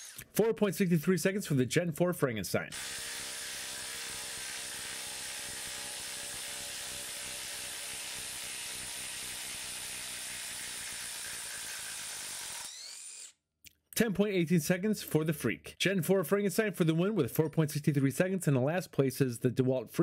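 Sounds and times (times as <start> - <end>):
impact wrench running: 2.7 - 13.4.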